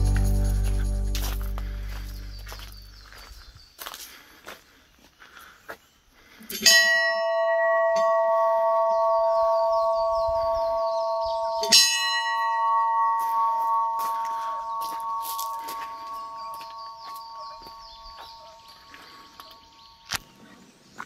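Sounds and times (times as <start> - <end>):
small metal bell ringing: 6.6 - 18.5.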